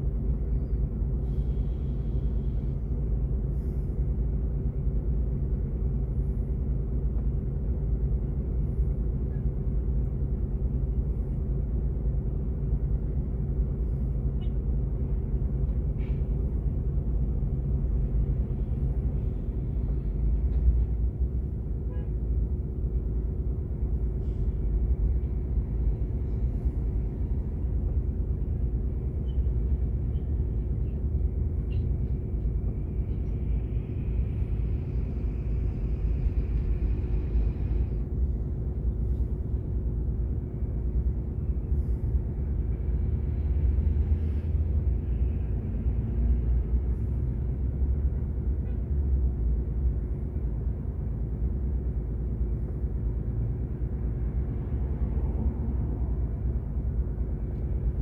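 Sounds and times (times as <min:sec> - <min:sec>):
road traffic passing: 0:00.0 - 0:58.0.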